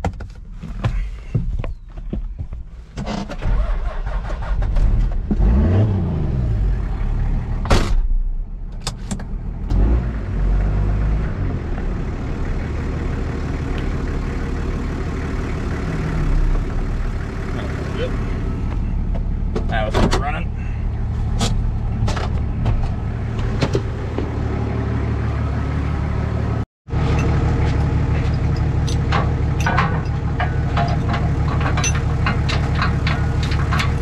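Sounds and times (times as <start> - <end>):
truck engine running: 10.4 - 34.0.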